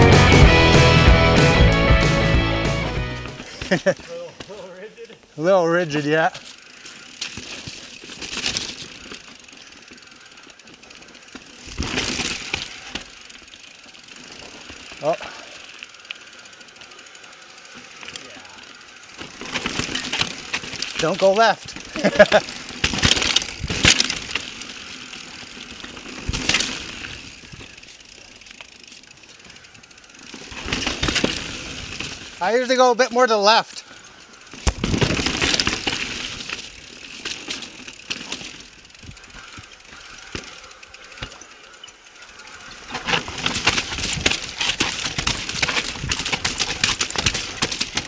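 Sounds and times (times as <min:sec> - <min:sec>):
bike tyres rolling on rock: 0:02.2 - 0:48.0
bike chain rattling and clicking: 0:05.9 - 0:48.0.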